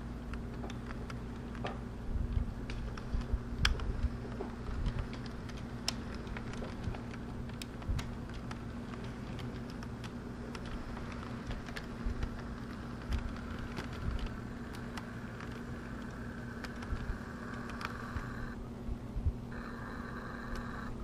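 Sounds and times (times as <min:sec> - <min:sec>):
wheels clicking on rails: 0:00.0 - 0:18.6
model train motor hum: 0:03.6 - 0:18.6, 0:19.5 - 0:21.0.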